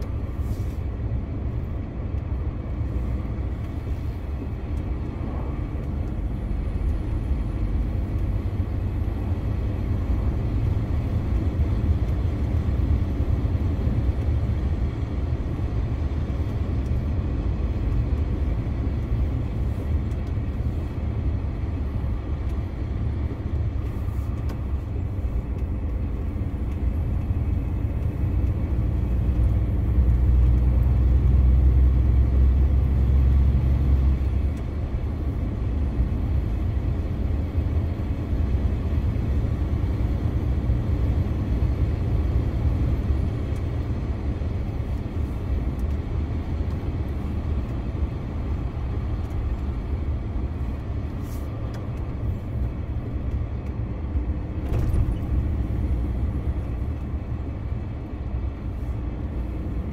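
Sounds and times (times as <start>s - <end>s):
truck diesel engine rumble: 0.0s - 59.9s
tyre and road noise: 0.0s - 59.9s.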